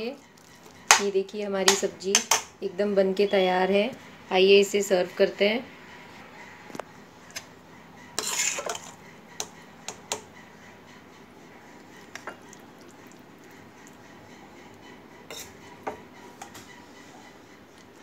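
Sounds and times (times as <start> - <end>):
spoon scraping metal pan: 8.2 - 10.2, 15.3 - 16.5.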